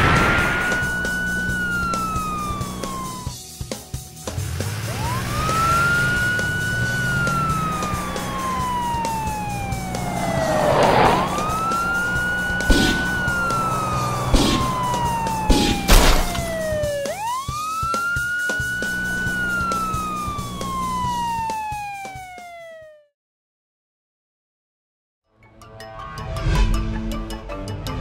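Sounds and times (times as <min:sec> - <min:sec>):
police siren wailing: 0:00.0 - 0:03.4, 0:04.8 - 0:23.1.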